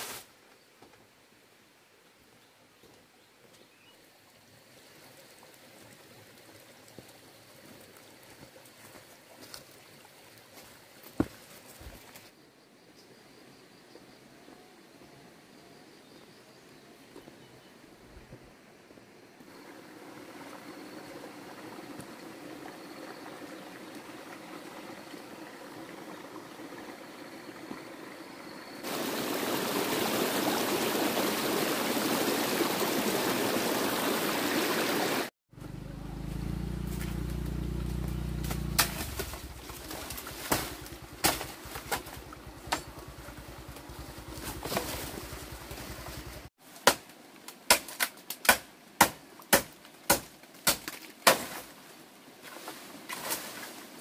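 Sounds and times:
dry bamboo crackling and snapping: 36.9s - 43.1s, 46.8s - 51.7s.

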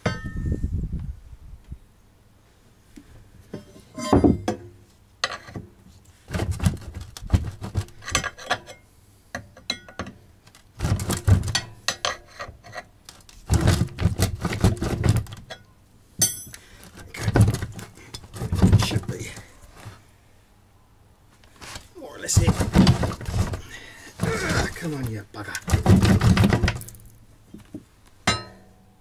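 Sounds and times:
metallic clunks and rattles: 3.5s - 5.6s.

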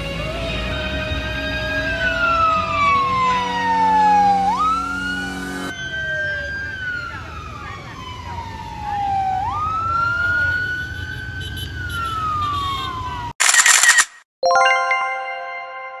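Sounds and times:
rumble of passing vehicles: 0.0s - 13.3s
police siren wailing: 0.0s - 13.4s
bell-like chime: 14.4s - 16.0s.

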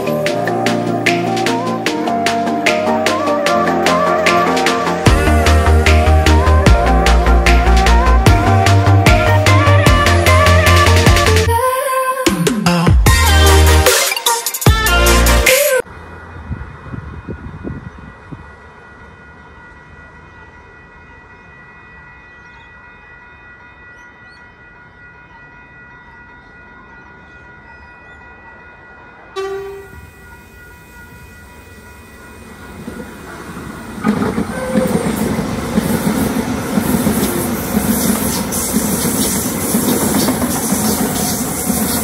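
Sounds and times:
train horn blast: 29.4s - 30.2s, 34.1s - 35.3s
train wheels rushing on rails: 29.7s - 42.0s.

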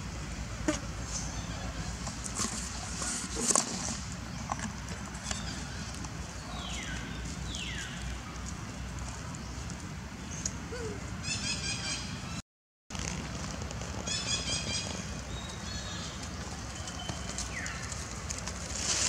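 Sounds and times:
rustling in dry leaves: 12.9s - 19.0s.

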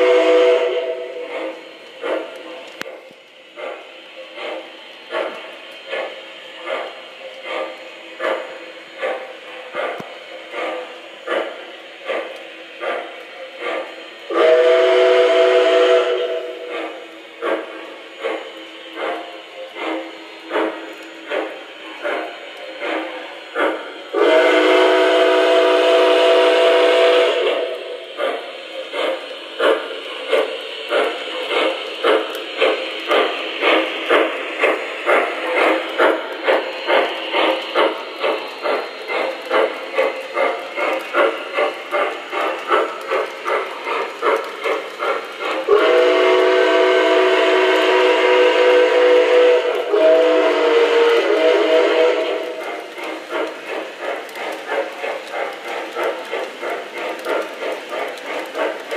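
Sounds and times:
train whistle blasts: 0.0s - 1.4s, 14.3s - 17.0s, 24.1s - 28.0s, 45.7s - 52.7s
steam locomotive chuffing: 0.0s - 58.9s.

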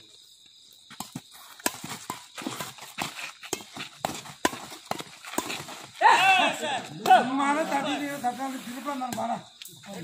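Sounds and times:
rackets hitting shuttlecock: 1.0s - 7.4s.

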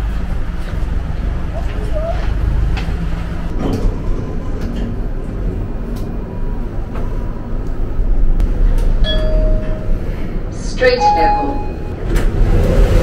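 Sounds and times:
lift low rumble: 0.0s - 13.0s
steady beep: 10.8s - 12.0s.

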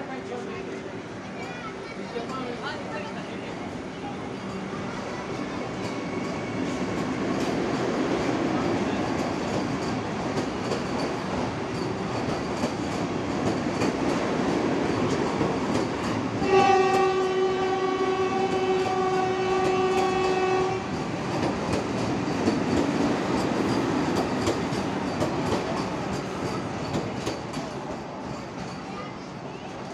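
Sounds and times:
train rumbling past: 0.0s - 29.9s
train horn long note: 16.4s - 20.9s.

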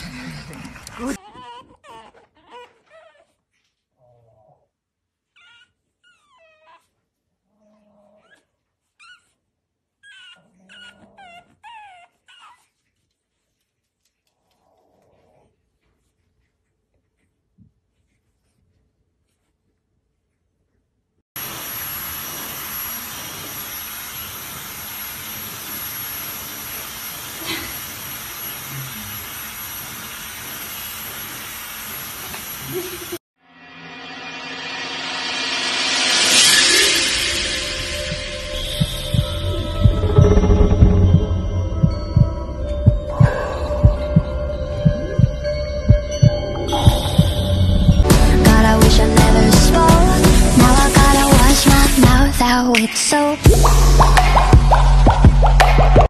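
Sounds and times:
puppy whining: 0.8s - 13.5s
hair dryer blowing: 21.4s - 33.2s.

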